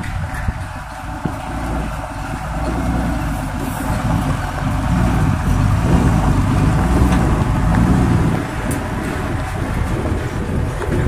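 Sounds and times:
truck diesel engine rumble: 0:00.0 - 0:11.0.

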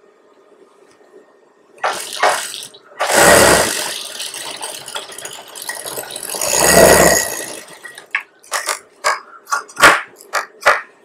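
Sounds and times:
sewing machine stitching: 0:01.8 - 0:08.9.

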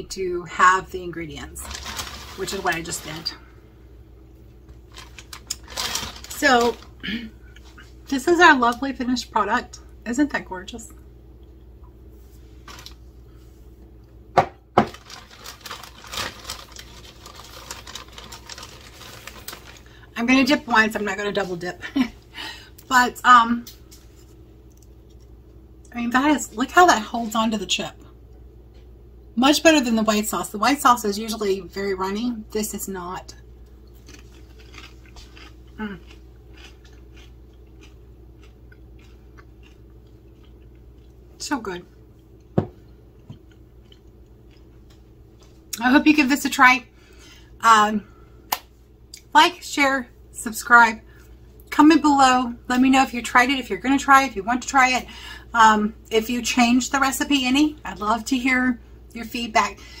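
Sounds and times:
steady low hum: 0:00.0 - 1:00.0
chip bag rustling: 0:01.4 - 0:03.3, 0:04.8 - 0:07.0, 0:14.8 - 0:20.3, 0:34.0 - 0:35.6.

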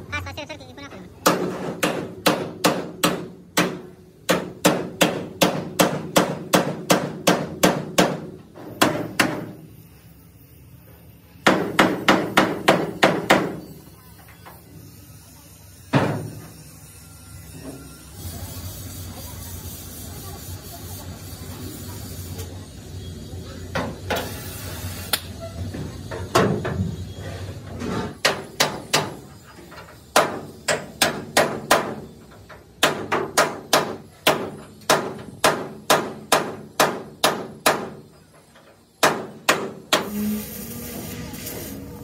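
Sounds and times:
hammer striking steel: 0:01.2 - 0:09.6, 0:11.4 - 0:13.7, 0:30.1 - 0:32.1, 0:32.8 - 0:38.1, 0:39.0 - 0:40.2.

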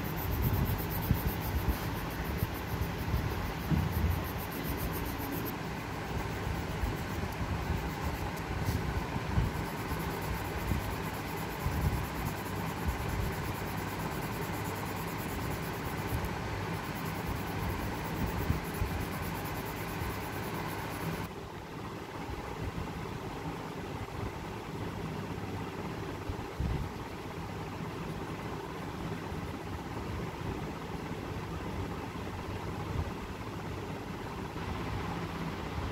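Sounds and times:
steady low rumble: 0:00.0 - 0:21.3
faint hum and hiss: 0:00.0 - 0:35.9.

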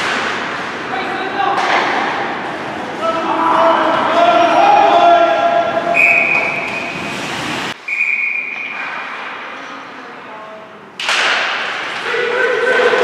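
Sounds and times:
crowd and rink noise: 0:00.0 - 0:13.0
referee's whistle blasts: 0:05.9 - 0:06.9, 0:07.8 - 0:08.7.

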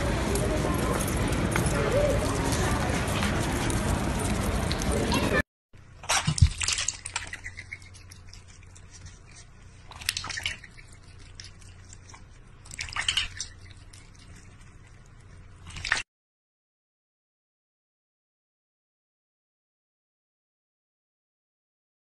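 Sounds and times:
faint low hum: 0:00.0 - 0:16.0
water splashing in a metal bowl: 0:06.0 - 0:08.5, 0:09.9 - 0:14.3, 0:15.6 - 0:16.0.

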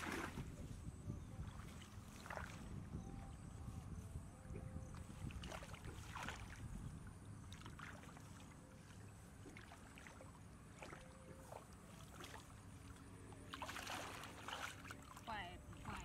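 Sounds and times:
hands sloshing in shallow water: 0:00.0 - 0:00.6, 0:05.0 - 0:16.0.

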